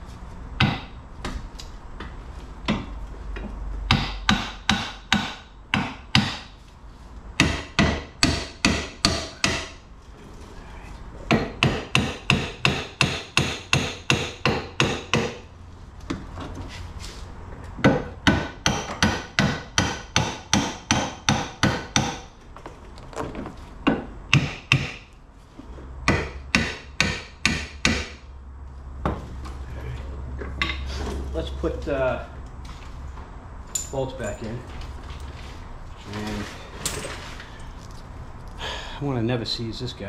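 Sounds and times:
hammer striking metal: 3.9s - 6.5s, 7.4s - 9.8s, 11.3s - 15.4s, 17.8s - 22.3s, 26.1s - 28.2s.

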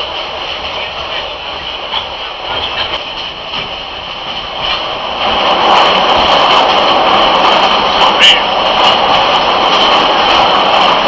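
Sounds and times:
train running noise: 0.0s - 11.0s.

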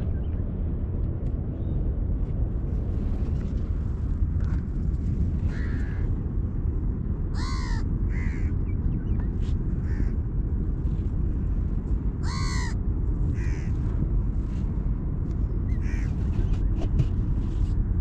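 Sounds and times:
low rumble: 0.0s - 18.0s
crows cawing: 5.5s - 6.1s, 7.3s - 8.6s, 9.8s - 10.2s, 12.2s - 13.8s, 15.7s - 16.1s.

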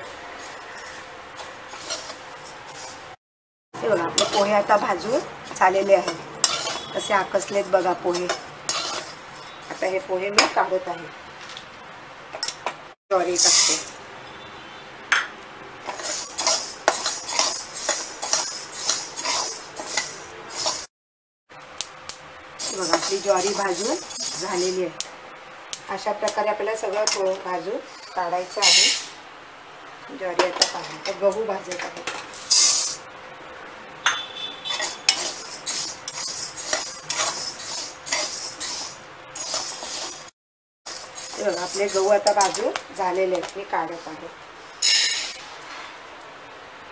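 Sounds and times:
spatula scraping grains in metal pan: 0.4s - 3.1s, 6.0s - 10.0s, 15.9s - 20.9s, 22.6s - 24.9s, 34.7s - 40.3s, 40.9s - 42.8s.

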